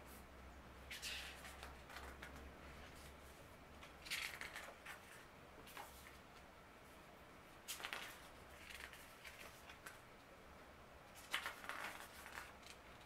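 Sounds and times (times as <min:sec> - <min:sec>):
paper pages rustling: 0:00.9 - 0:06.2, 0:07.7 - 0:10.0, 0:11.1 - 0:13.0.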